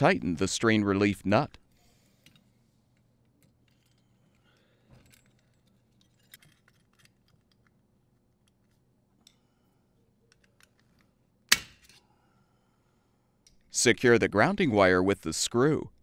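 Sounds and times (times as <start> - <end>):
clicks of small metal parts: 3.0 - 7.8.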